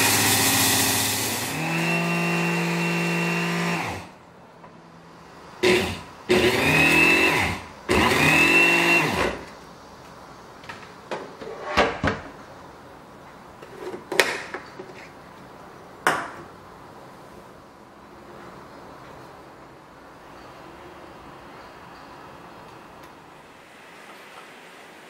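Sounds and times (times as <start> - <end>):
hand blender motor whining: 0.0 - 4.1, 5.6 - 9.4.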